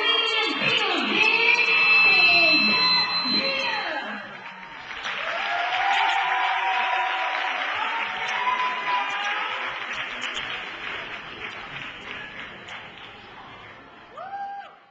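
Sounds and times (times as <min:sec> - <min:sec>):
audience applauding: 0:04.2 - 0:13.8
shouts and whoops: 0:04.5 - 0:09.5, 0:14.1 - 0:14.9.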